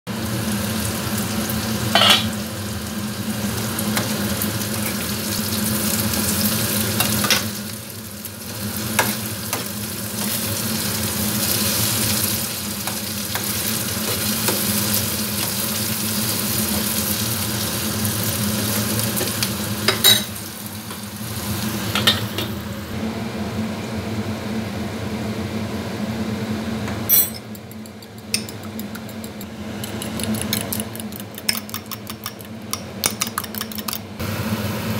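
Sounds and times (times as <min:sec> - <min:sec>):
vegetables sizzling in a pan: 0:00.1 - 0:23.0
spoon beating eggs in bowl: 0:27.4 - 0:34.1.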